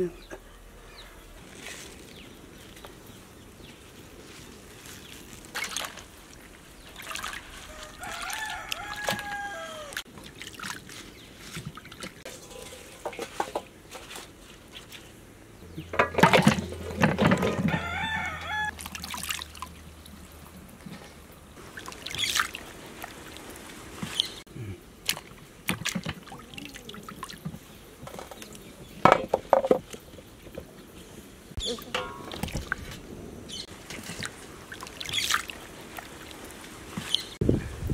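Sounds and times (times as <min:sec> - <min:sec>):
water pouring and splashing: 0:01.4 - 0:15.2, 0:15.9 - 0:28.6, 0:31.6 - 0:37.9
rooster crowing: 0:07.6 - 0:10.0, 0:17.5 - 0:18.8.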